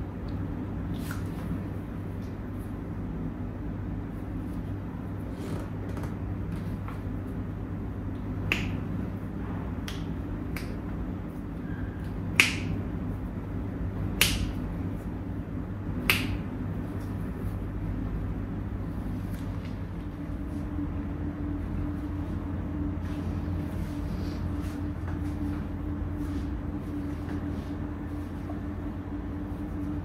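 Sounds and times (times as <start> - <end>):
steady low hum: 0.0 - 30.0
sharp hand snaps: 1.0 - 1.3, 8.4 - 9.0, 9.8 - 10.9, 12.3 - 12.8, 14.1 - 14.7, 16.0 - 16.5.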